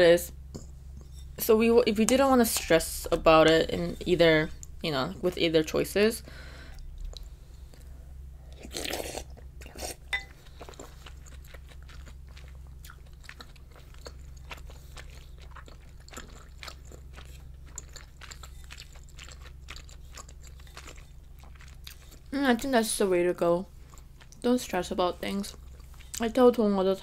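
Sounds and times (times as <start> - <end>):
close chewing with wet mouth clicks: 8.6 - 22.3, 23.8 - 24.5, 25.4 - 26.3.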